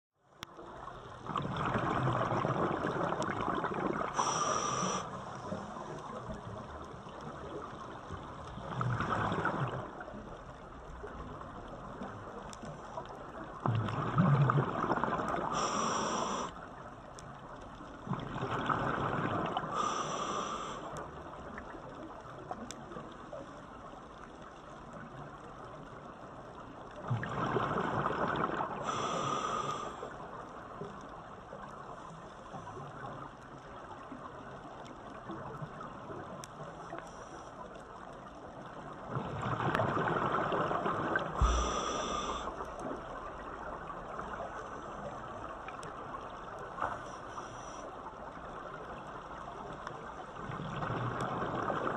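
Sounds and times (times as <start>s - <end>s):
low water hiss: 0.2s - 51.9s
bubbling rush: 1.2s - 5.0s, 39.4s - 43.2s
diver breathing through regulator: 4.1s - 5.8s, 15.5s - 16.6s, 19.6s - 21.0s, 28.8s - 30.1s, 41.4s - 42.7s.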